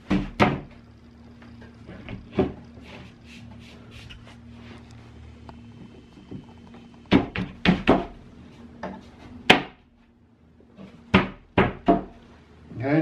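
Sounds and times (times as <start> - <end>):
knocks of wooden panels: 0.0 - 0.7, 7.1 - 8.2, 11.1 - 12.2.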